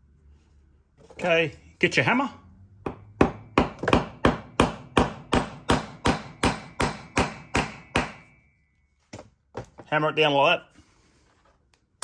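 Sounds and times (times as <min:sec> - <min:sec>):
hammer striking metal: 0:02.9 - 0:08.6.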